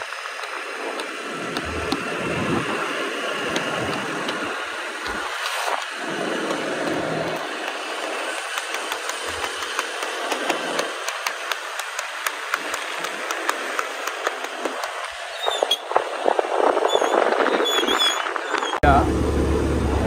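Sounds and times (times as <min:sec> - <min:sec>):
wind noise on microphone: 0:00.0 - 0:05.8, 0:15.4 - 0:18.8
motorcycle engine: 0:00.6 - 0:14.8.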